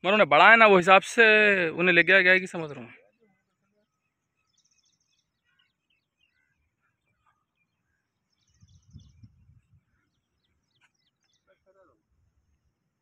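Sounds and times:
bird chirps: 0:03.0 - 0:11.9.

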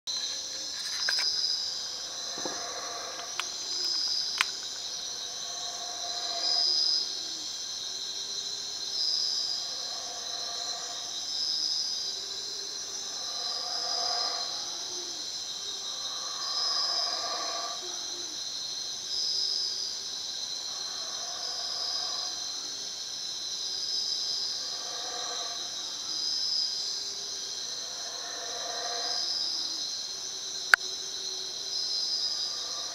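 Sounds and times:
insect chorus buzzing: 0:00.1 - 0:32.9
low animal call: 0:01.9 - 0:07.5, 0:27.0 - 0:29.8.

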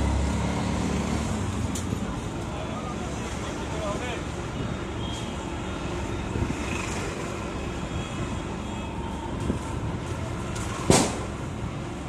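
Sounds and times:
street noise with low rumble: 0:00.0 - 0:12.0
sharp knock: 0:10.9 - 0:11.2.

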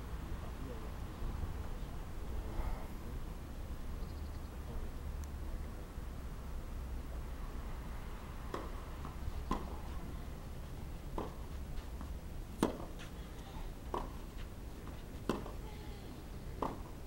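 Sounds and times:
tennis ball struck by rackets: 0:08.5 - 0:10.0, 0:11.1 - 0:11.4, 0:12.0 - 0:13.2, 0:13.9 - 0:15.6, 0:16.6 - 0:16.9.

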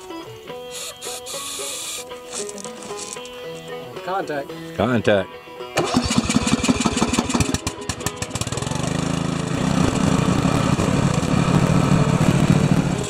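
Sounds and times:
lawn tractor engine starting: 0:00.7 - 0:03.2, 0:05.8 - 0:13.0.

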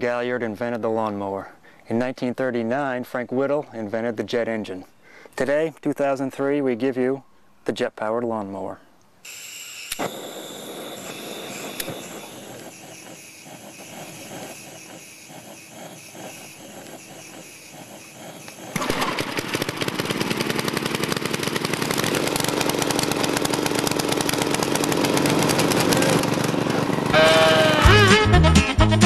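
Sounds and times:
lawn mower engine running: 0:09.3 - 0:28.6.

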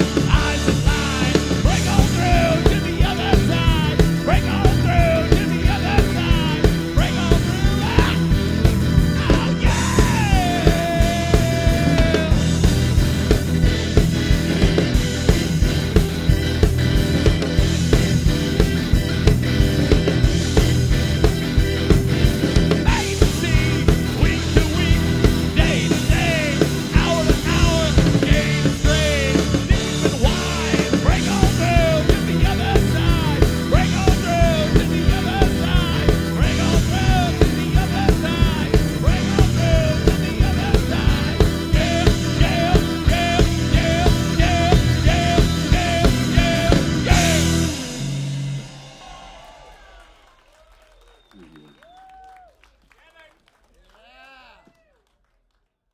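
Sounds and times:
person singing: 0:00.0 - 0:13.0, 0:22.7 - 0:47.9
live rock band playing: 0:00.0 - 0:49.6.

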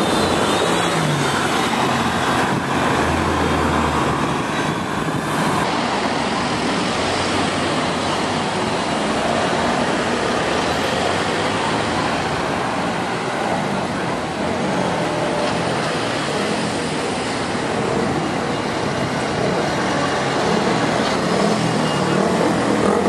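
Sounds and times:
road traffic drone: 0:00.0 - 0:23.0.

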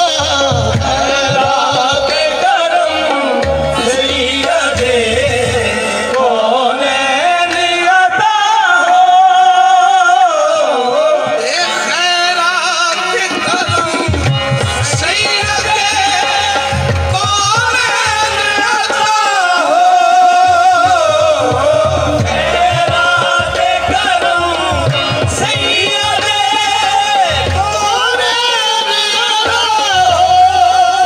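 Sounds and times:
harmonium: 0:00.0 - 0:31.0
man singing: 0:00.0 - 0:31.0
drum beat: 0:13.2 - 0:16.5.

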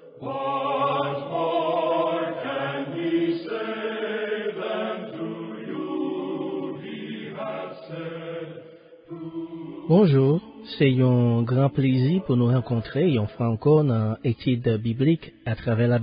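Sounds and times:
slow choral singing: 0:00.0 - 0:13.4.

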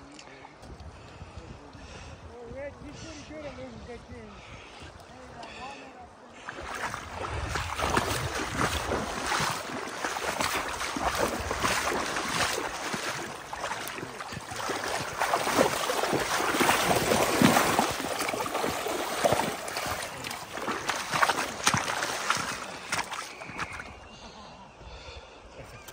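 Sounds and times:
person wading through water: 0:03.4 - 0:25.2
fish thrashing at surface: 0:07.1 - 0:23.8.

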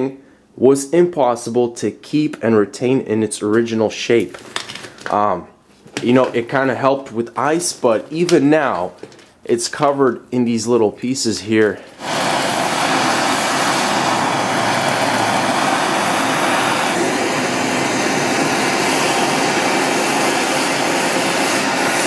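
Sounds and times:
gas torch hissing: 0:11.7 - 0:22.0.

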